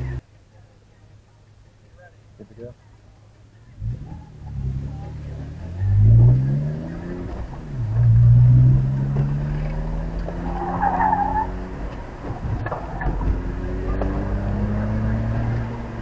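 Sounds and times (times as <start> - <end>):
car engine under load: 0.0 - 16.0
tyres squealing: 9.8 - 13.4.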